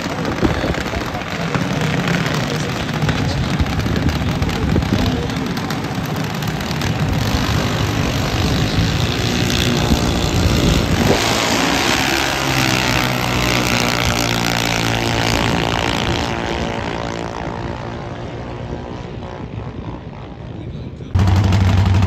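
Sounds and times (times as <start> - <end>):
drag racing car engine: 0.0 - 20.5, 21.2 - 22.0.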